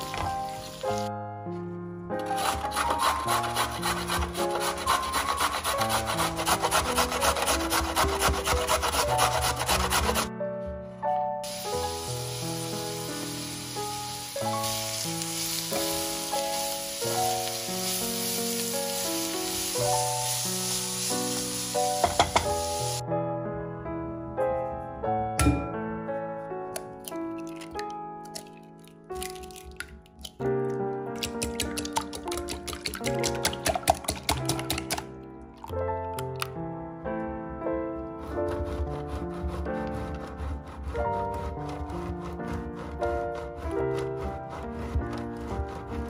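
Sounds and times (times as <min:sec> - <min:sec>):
soft piano music: 0:00.0 - 0:46.0
carrot grating on metal grater: 0:02.2 - 0:10.3, 0:38.2 - 0:46.0
vegetables sizzling in oil: 0:11.4 - 0:23.0.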